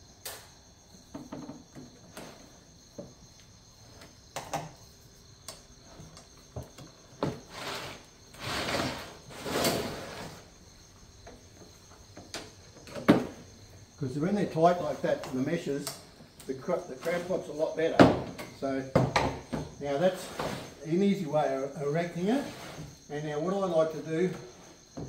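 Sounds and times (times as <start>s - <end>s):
frame and net scraping rustling: 7.0s - 10.6s, 19.9s - 24.9s.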